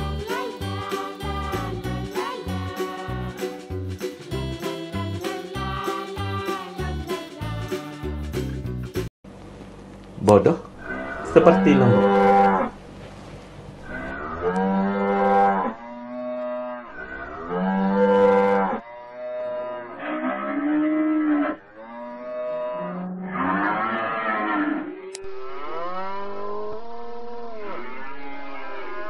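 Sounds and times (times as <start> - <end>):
cattle mooing: 10.8 - 12.8, 13.8 - 28.6.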